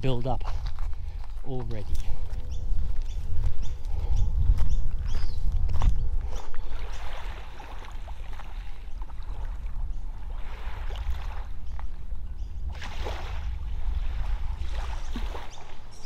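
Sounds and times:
wind rumbling on microphone: 0:00.0 - 0:16.0
small waves lapping on shore: 0:06.3 - 0:16.0.

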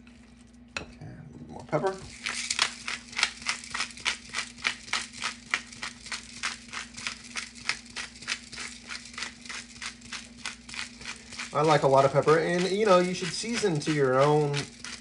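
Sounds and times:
pepper grinder crunching: 0:01.8 - 0:15.0.

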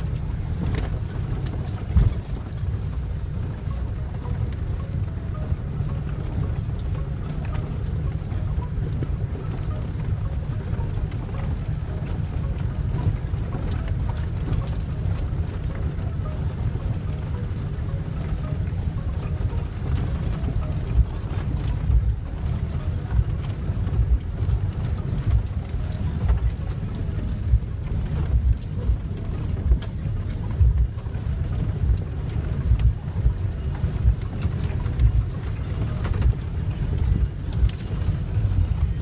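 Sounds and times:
engine and tyre rumble: 0:00.0 - 0:39.0.

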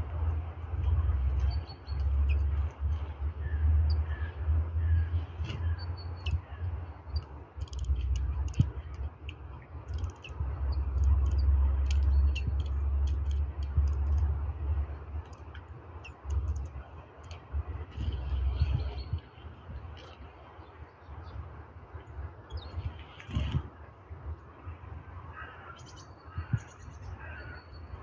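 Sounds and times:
wind rumbling on microphone: 0:00.0 - 0:28.0
bird chirping: 0:00.8 - 0:02.6, 0:09.8 - 0:14.3
sharp clicks: 0:07.1 - 0:18.4.

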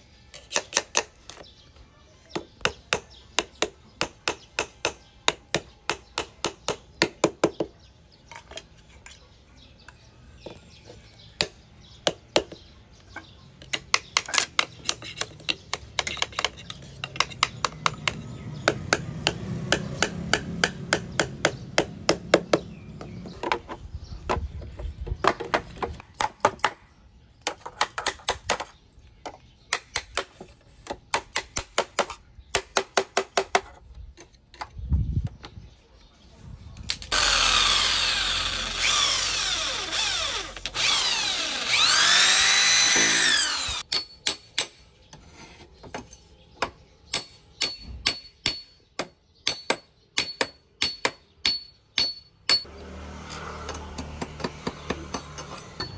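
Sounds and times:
power drill boring into bamboo: 0:37.1 - 0:43.8.

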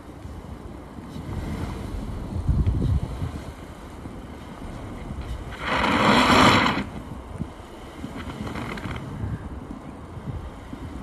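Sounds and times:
tyres spinning in snow: 0:05.4 - 0:07.1, 0:08.0 - 0:09.2.

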